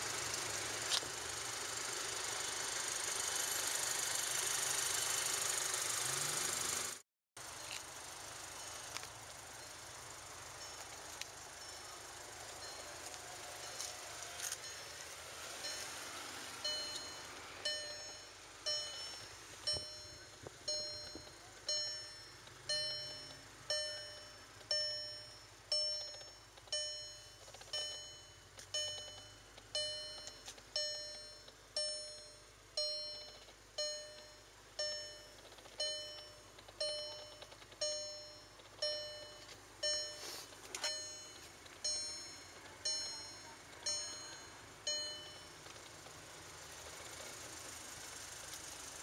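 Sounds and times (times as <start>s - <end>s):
car warning chime dinging: 8.5s - 46.7s.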